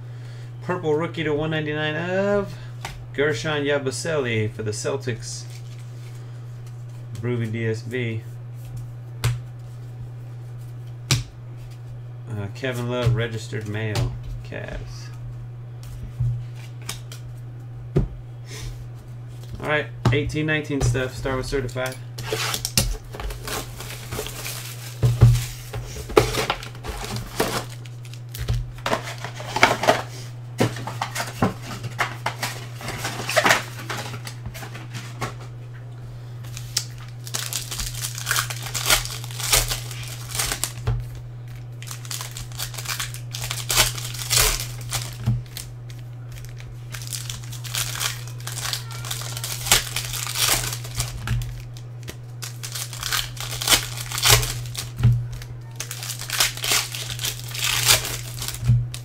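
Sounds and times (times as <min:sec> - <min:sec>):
steady low hum: 0:00.0 - 0:59.0
plastic and foil crinkling: 0:21.7 - 0:35.4, 0:36.5 - 0:59.0.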